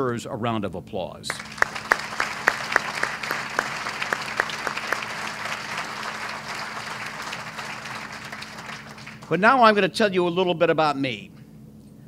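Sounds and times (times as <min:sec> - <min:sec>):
audience applauding: 0:01.3 - 0:09.4
close sharp hand claps: 0:01.3 - 0:09.4.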